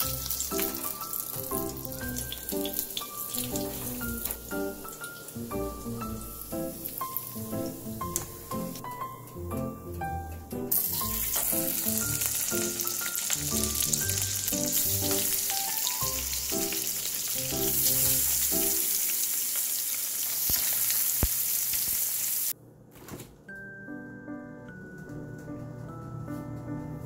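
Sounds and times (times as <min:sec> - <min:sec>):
meat sizzling in a frying pan: 0:00.0 - 0:08.2, 0:10.7 - 0:22.5
background music with plucked notes: 0:00.0 - 0:19.0, 0:23.5 - 0:27.0.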